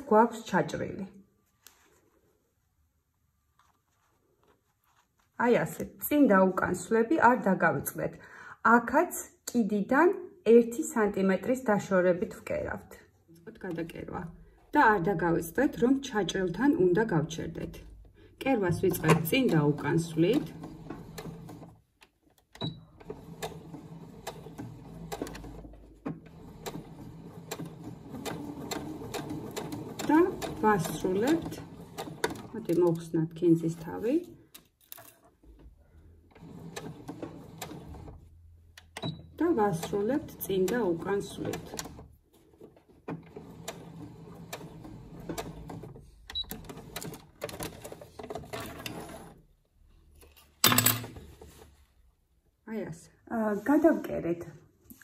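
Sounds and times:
sewing machine stitching: 18.6s - 21.9s, 22.5s - 33.1s, 36.2s - 49.5s.

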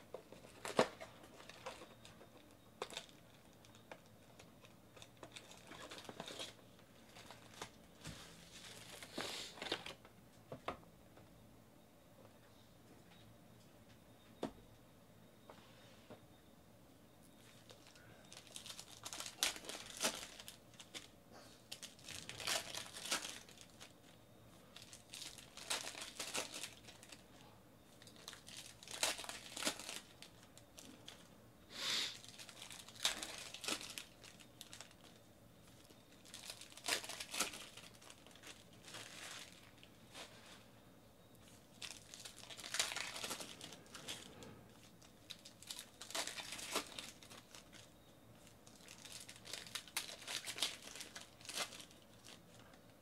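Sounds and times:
foil wrappers crinkling and tearing: 0.2s - 10.0s, 17.5s - 21.1s, 21.7s - 27.4s, 28.0s - 31.3s, 32.0s - 40.7s, 41.4s - 52.8s.

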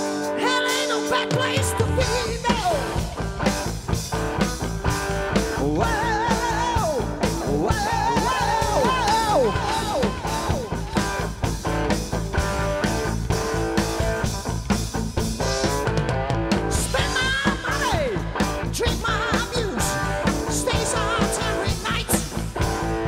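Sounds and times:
drum kit beat: 0.0s - 23.0s
electric guitar: 0.0s - 23.0s
rock band playing: 0.0s - 23.0s
man singing with vibrato: 0.3s - 3.0s, 5.5s - 10.7s, 16.7s - 22.4s.

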